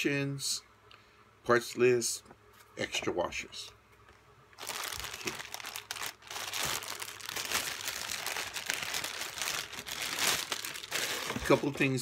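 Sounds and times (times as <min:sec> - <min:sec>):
plastic bag crinkling: 0:04.6 - 0:12.0.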